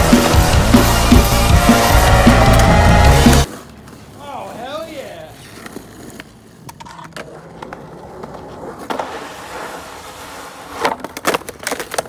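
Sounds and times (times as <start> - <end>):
skateboard wheels rolling on asphalt: 0.0 - 12.0
skateboard clacking: 10.5 - 12.0.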